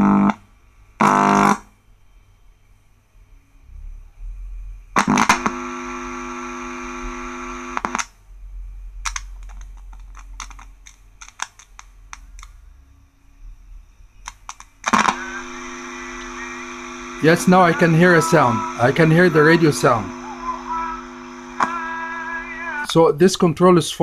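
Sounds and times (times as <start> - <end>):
loudspeaker buzzing hum: 4.1 - 8.0, 14.8 - 23.0
sharp clicks and crackles: 9.0 - 12.6, 14.2 - 15.3.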